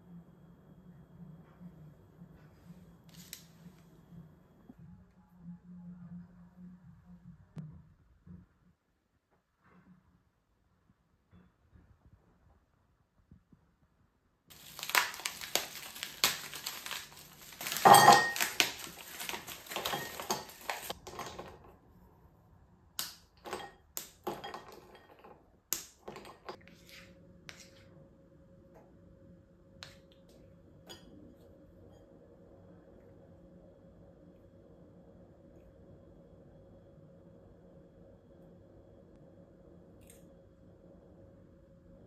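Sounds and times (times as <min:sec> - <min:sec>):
faint steady hum: 0:00.0 - 0:42.0
chocolate snapping: 0:14.5 - 0:17.8
pieces clinking into ceramic bowl: 0:17.6 - 0:21.5.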